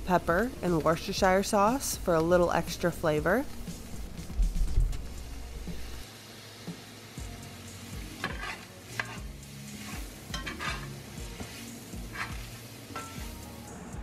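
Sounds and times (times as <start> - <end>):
meat and onions sizzling in a pan: 3.5 - 14.0
spatula scraping a pan: 8.0 - 13.4.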